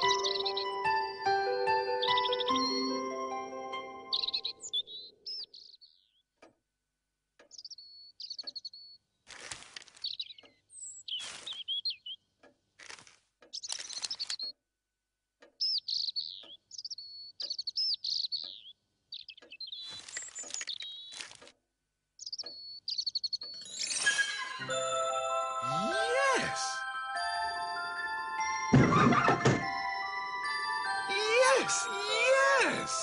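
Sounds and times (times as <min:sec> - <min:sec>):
robin chirping: 0:00.0 - 0:03.2, 0:03.8 - 0:06.3, 0:07.4 - 0:09.0, 0:10.0 - 0:12.3, 0:15.5 - 0:21.2, 0:22.2 - 0:24.6.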